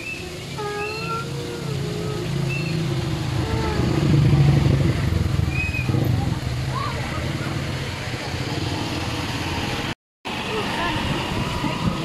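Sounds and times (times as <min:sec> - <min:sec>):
vehicle engine running: 0:00.2 - 0:09.9.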